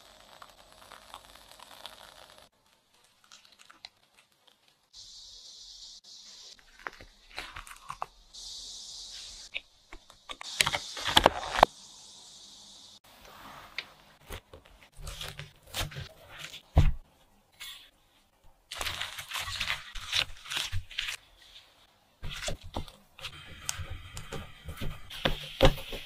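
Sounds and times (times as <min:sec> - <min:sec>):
crinkling and crackling: 0:00.0 - 0:04.9, 0:06.5 - 0:08.2, 0:18.4 - 0:26.0.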